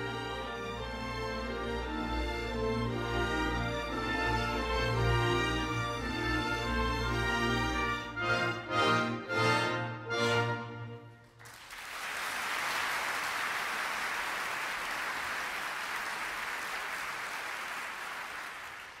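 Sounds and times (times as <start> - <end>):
music: 0.0 - 11.4
audience applauding: 11.2 - 19.0.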